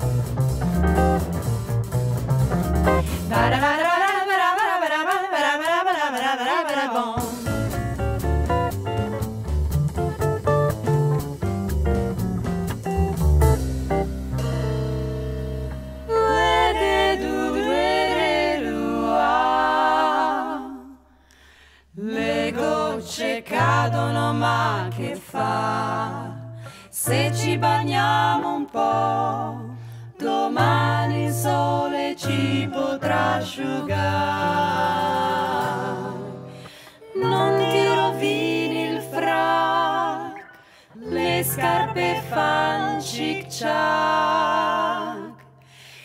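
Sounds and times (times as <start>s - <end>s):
plucked double bass: 0.0s - 3.7s, 7.2s - 20.1s, 22.3s - 36.6s, 37.2s - 40.4s, 41.1s - 45.6s
female vocal trio singing: 3.0s - 7.5s, 16.1s - 21.2s, 21.9s - 46.0s.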